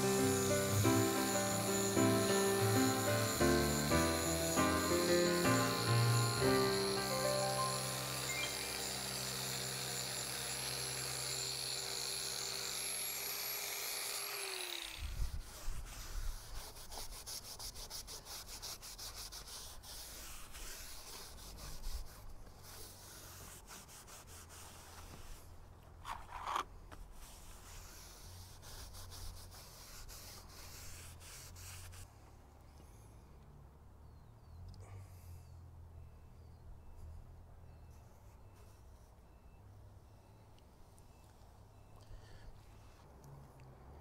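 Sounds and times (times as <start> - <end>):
angle grinder running: 0.0 - 15.3
cloth rubbing on fibreglass: 15.2 - 32.2.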